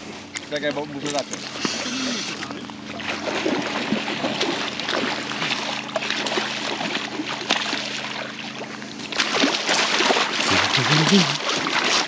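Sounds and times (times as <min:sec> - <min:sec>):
steady low hum: 0:00.0 - 0:12.0
water splashing and trickling: 0:02.5 - 0:12.0.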